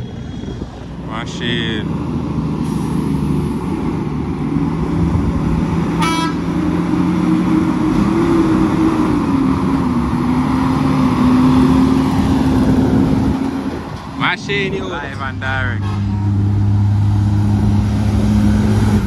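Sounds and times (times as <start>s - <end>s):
truck diesel engine running: 0.0s - 19.0s
short horn toot: 6.0s - 6.4s, 15.7s - 16.2s.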